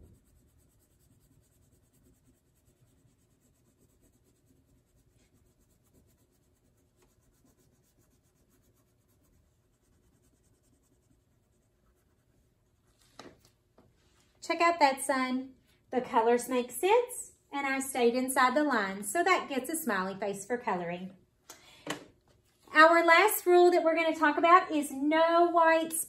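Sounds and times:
crayon scratching on paper: 0:00.0 - 0:13.0.

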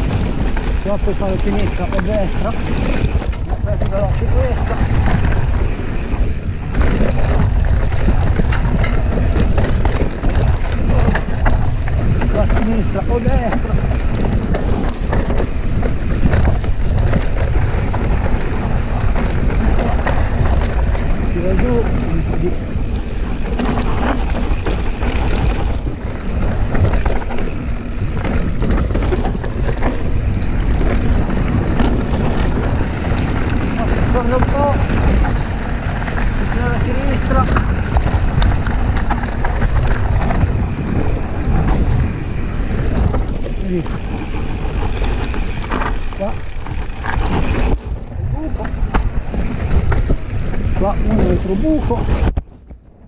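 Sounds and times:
bike clicking and rattling: 0:00.0 - 0:53.0
tyres rumbling on dirt: 0:00.0 - 0:53.0
wind buffeting microphone: 0:00.0 - 0:53.0.

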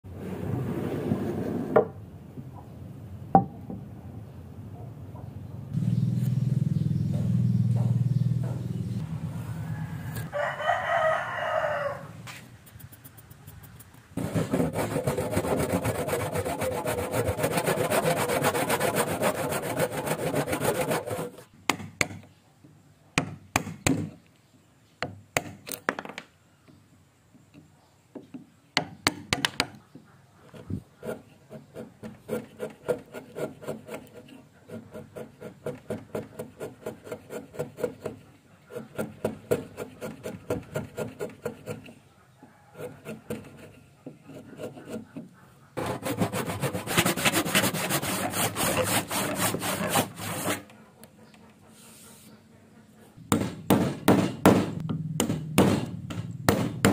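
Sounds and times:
chisel scraping wood: 0:14.2 - 0:21.5, 0:30.5 - 0:42.0, 0:42.7 - 0:50.8
hand saw cutting wood: 0:14.2 - 0:21.5, 0:30.6 - 0:42.0, 0:42.8 - 0:50.7.

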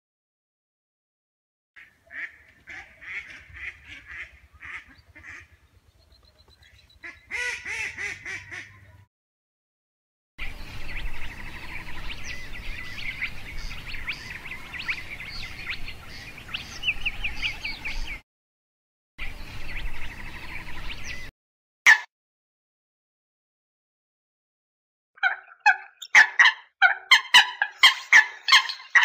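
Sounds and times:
ducks quacking: 0:01.8 - 0:05.7, 0:06.4 - 0:09.1, 0:25.2 - 0:29.0
high-pitched chirping calls: 0:25.2 - 0:29.0.

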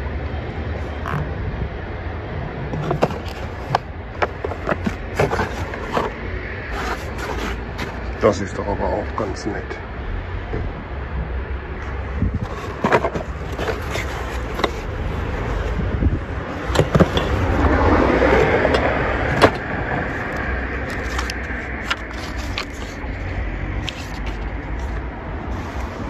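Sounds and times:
car passing: 0:00.0 - 0:26.0
low street rumble: 0:00.0 - 0:26.0
hands rummaging in cardboard box: 0:02.7 - 0:08.2, 0:12.4 - 0:15.8, 0:16.5 - 0:26.0
rustling paper and cloth: 0:02.7 - 0:08.2, 0:12.4 - 0:15.8, 0:20.1 - 0:26.0.

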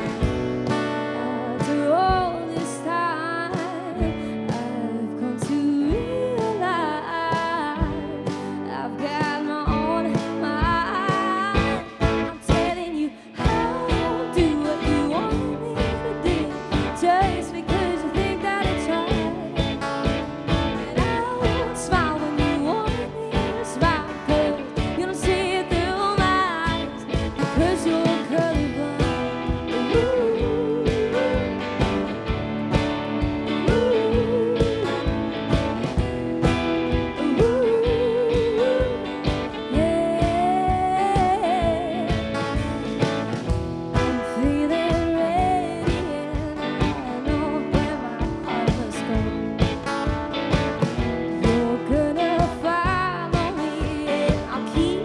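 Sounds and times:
woman singing: 0:00.0 - 0:32.3, 0:33.2 - 0:36.1, 0:36.9 - 0:42.9, 0:43.9 - 0:49.9, 0:51.2 - 0:55.0
drum kit beat: 0:00.0 - 0:55.0
electric guitar: 0:00.0 - 0:55.0.

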